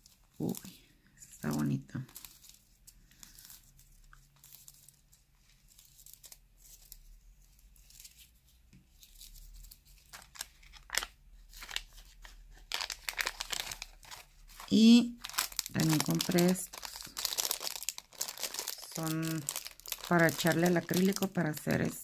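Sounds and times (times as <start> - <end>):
foil crinkling: 0.0 - 7.1, 9.0 - 22.0.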